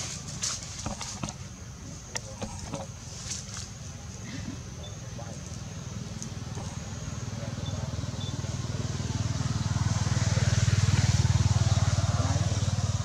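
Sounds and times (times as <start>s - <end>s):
passing vehicle engine: 5.7s - 13.0s.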